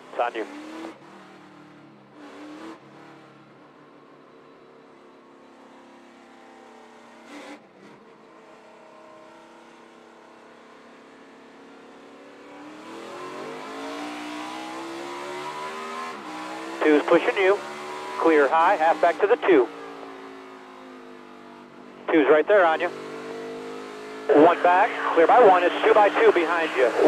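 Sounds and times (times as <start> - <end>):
race car engine revving: 12.6 - 20.5, 22.1 - 27.0.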